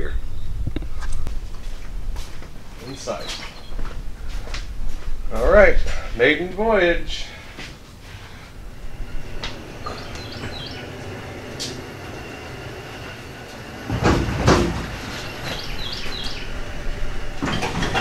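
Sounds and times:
tires rolling on concrete: 7.8s - 18.0s.

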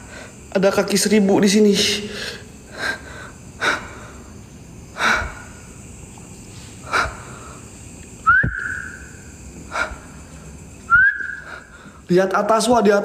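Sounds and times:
man breathing: 2.0s - 7.9s, 9.6s - 10.7s, 11.3s - 12.1s.

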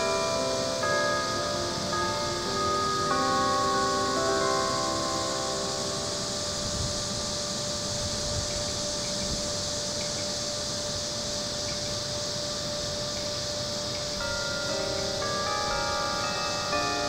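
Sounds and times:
clock tower bell note: 0.0s - 8.8s, 13.1s - 17.0s
steady high hiss: 0.0s - 17.0s.

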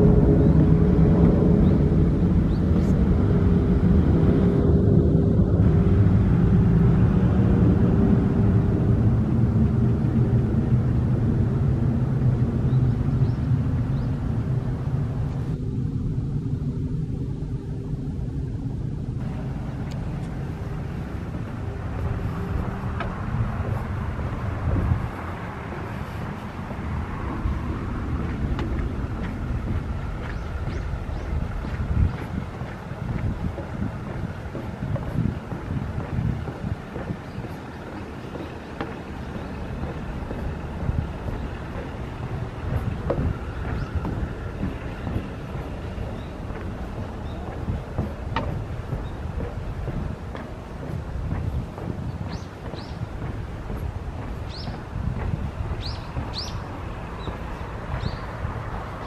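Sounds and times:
jet airliner passing overhead: 0.0s - 33.5s.

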